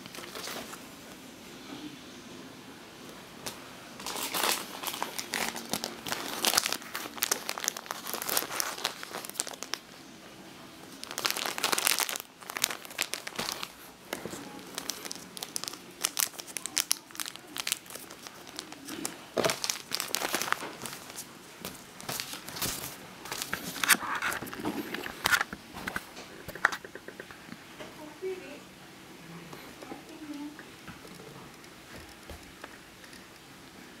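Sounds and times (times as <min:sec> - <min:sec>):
plastic packaging crinkling: 0:00.0 - 0:00.8, 0:03.4 - 0:10.0, 0:10.8 - 0:25.5.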